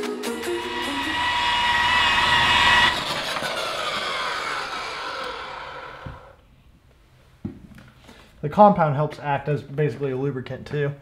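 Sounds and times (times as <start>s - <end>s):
rotary polisher whining: 0.2s - 6.4s.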